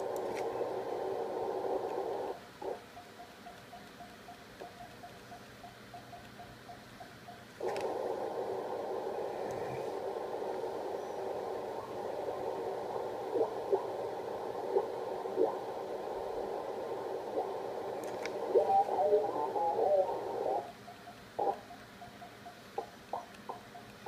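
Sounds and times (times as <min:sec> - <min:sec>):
shortwave band noise hiss: 0:00.0 - 0:24.0
static crackles: 0:00.0 - 0:24.0
morse code tone pulsing: 0:11.0 - 0:24.0.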